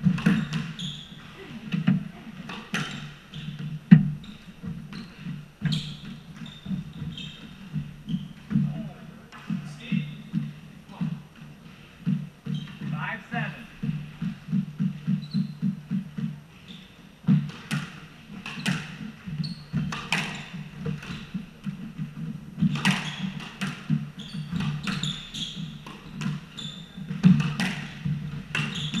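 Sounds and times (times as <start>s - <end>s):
shoes squeaking on wooden floor: 0.0s - 29.0s
squash ball cracking off walls: 27.0s - 29.0s.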